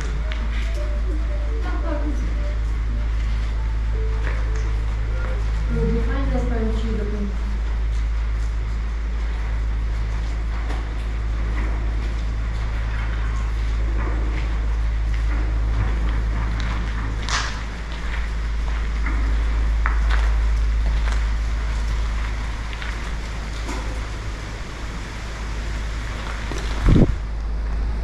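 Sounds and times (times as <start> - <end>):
wind buffeting microphone: 13.8 - 28.0.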